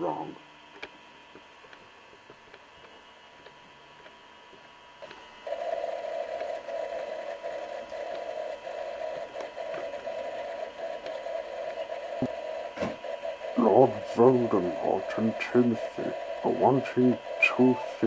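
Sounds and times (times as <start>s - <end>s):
faint steady whine: 0.0s - 18.0s
wavering droning hum: 5.1s - 18.0s.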